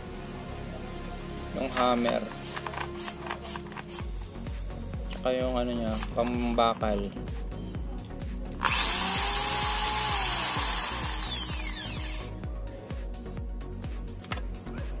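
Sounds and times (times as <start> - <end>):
electric drill motor whining: 8.6 - 12.3.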